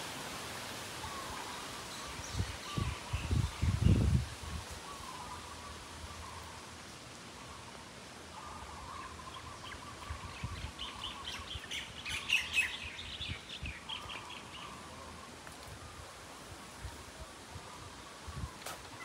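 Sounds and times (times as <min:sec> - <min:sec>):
faint outdoor background: 0:00.0 - 0:19.0
birds chirping: 0:04.8 - 0:15.3.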